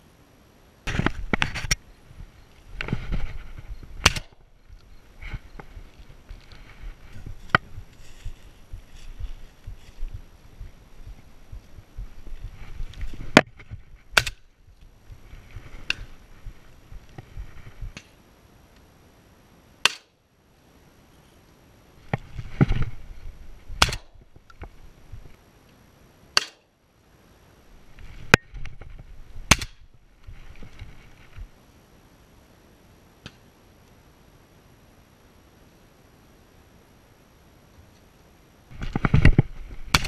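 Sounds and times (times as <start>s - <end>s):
rustling: 0.9s - 18.2s, 22.0s - 25.4s, 27.7s - 31.6s
shotgun shots: 4.0s - 4.4s.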